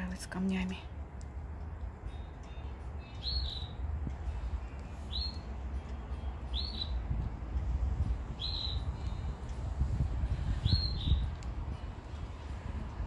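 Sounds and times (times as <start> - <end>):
steady low rumble: 0.0 - 13.0
bird high chirp: 2.5 - 3.8, 5.0 - 5.5, 6.1 - 7.0, 8.3 - 9.3, 10.5 - 11.4.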